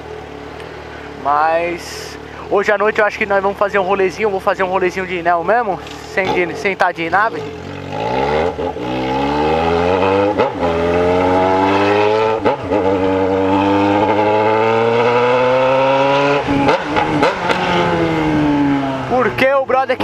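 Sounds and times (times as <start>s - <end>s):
motorcycle engine accelerating: 5.8s - 19.6s.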